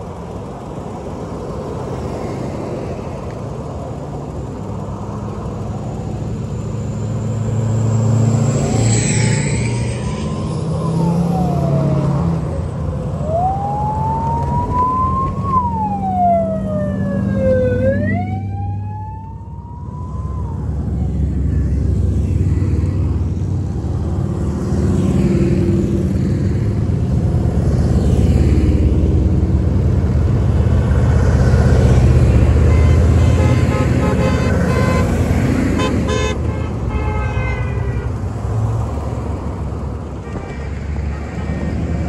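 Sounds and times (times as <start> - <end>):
tractor-trailers passing: 0.0 - 42.0
vehicle engines rumbling: 0.0 - 42.0
motorcycles passing: 3.9 - 42.0
siren wailing: 8.2 - 22.9.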